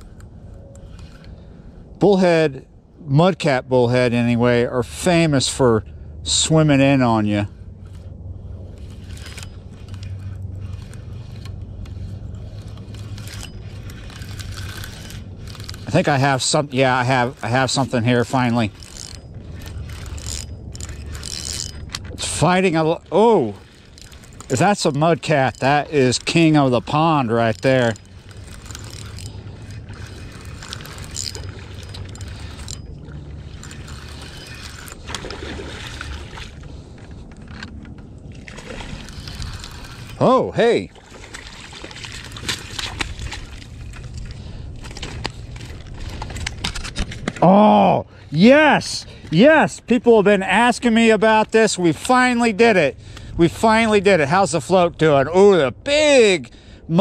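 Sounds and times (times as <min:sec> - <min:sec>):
reel clicks: 0:00.0 - 0:01.5, 0:06.9 - 0:40.3, 0:41.2 - 0:47.4
fishing reel gears whirring: 0:00.0 - 0:01.7, 0:06.3 - 0:47.0.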